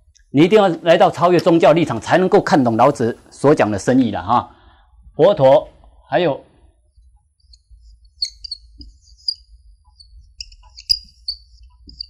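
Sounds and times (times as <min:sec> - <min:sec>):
marker squeaking on whiteboard: 0:07.4 - 0:12.0.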